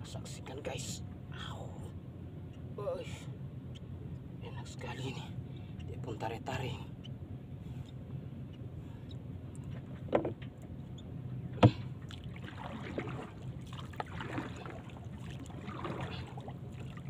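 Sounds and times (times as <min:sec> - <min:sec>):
steady low hum: 0:00.0 - 0:17.0
knocks on boat hull: 0:10.0 - 0:10.4
paddle splashing water: 0:11.6 - 0:17.0.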